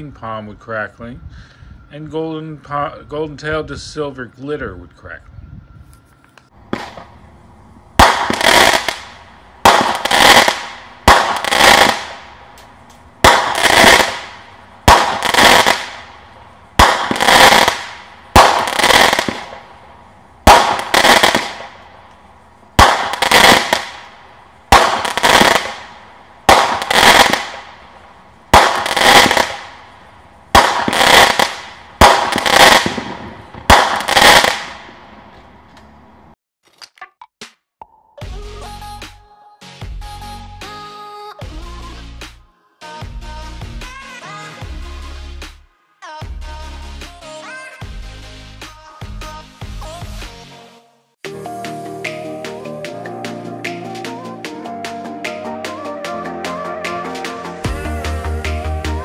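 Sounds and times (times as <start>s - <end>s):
firework launch thumps: 6.7s - 7.1s, 24.7s - 25.9s
firework shells crackling: 8.0s - 35.4s.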